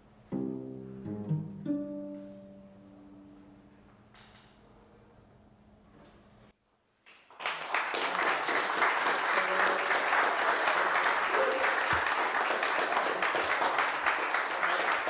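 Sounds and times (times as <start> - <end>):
audience applause: 7.1 - 15.0.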